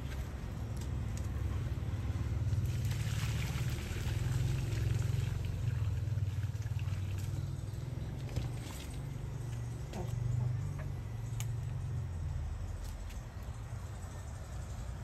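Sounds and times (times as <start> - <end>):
low steady rumble: 0.0 - 15.0
water splashing onto earth: 2.6 - 9.1.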